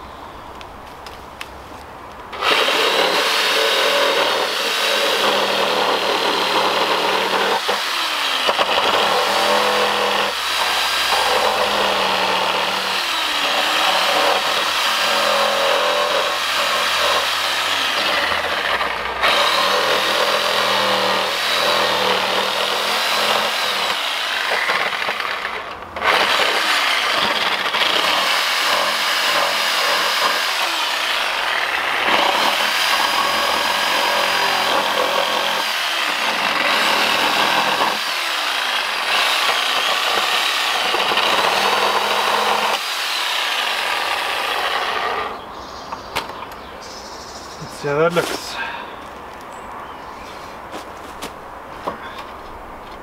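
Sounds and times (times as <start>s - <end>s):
power tool cutting wood: 2.3s - 45.4s.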